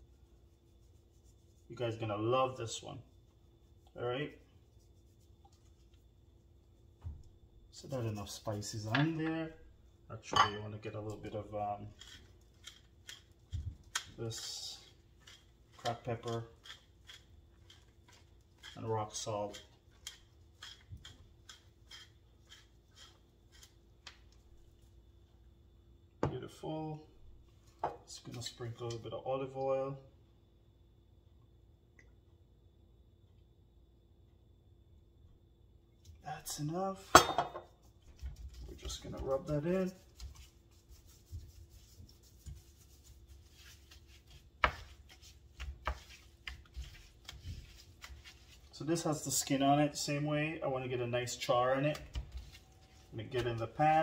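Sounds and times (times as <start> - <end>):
gloved hands rubbing fish: 0.0 - 2.8, 3.4 - 7.0, 38.0 - 49.7, 52.0 - 54.0
spice grinder crunching: 11.9 - 24.2.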